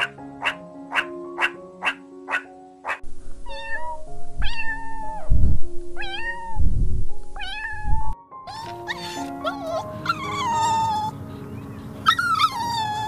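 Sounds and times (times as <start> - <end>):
background music: 0.0 - 13.0
low rumbles: 3.0 - 8.2
kitten meowing: 3.4 - 5.4, 6.0 - 6.7, 7.3 - 11.1.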